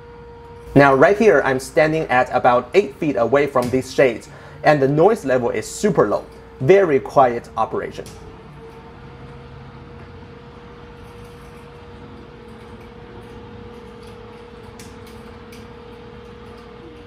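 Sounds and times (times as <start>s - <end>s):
window shade motor humming: 0.0s - 17.0s.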